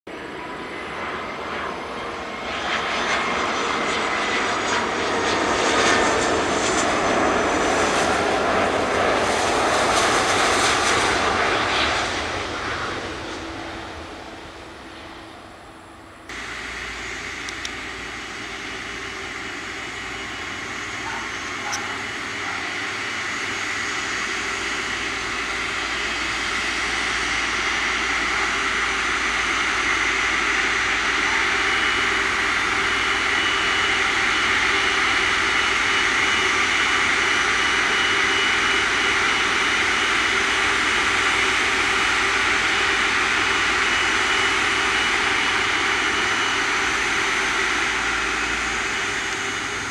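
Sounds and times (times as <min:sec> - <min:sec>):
engine noise with whine: 0:00.1 - 0:49.9
jet engines roaring: 0:00.1 - 0:49.9.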